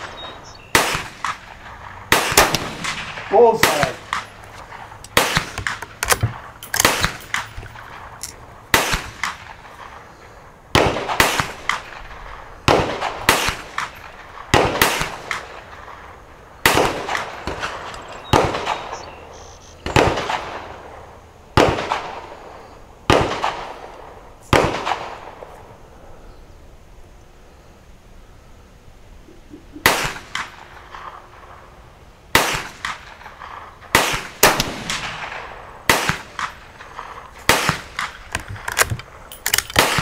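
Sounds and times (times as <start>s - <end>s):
gunshots with echo: 0.0s - 10.1s, 10.7s - 19.0s, 29.8s - 31.3s, 32.3s - 38.2s.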